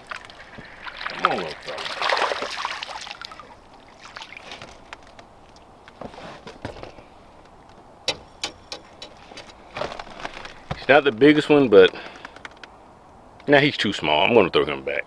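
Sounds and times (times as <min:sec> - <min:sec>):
fish splashing at water surface: 0:00.0 - 0:05.1
handling noises: 0:04.4 - 0:12.8
sharp clicks: 0:11.8 - 0:12.8.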